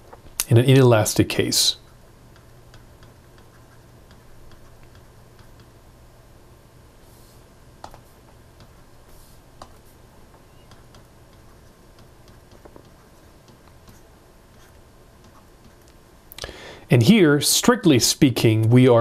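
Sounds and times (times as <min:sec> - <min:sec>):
low steady hum: 0:00.0 - 0:19.0
stylus tapping on tablet screen: 0:02.3 - 0:05.8, 0:07.8 - 0:08.8, 0:10.6 - 0:14.0.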